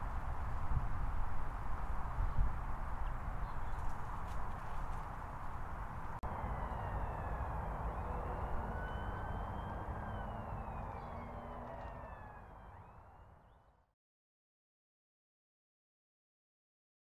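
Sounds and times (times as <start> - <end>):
distant vehicle rumble: 2.7 - 13.7
faint thin whines: 6.4 - 13.2.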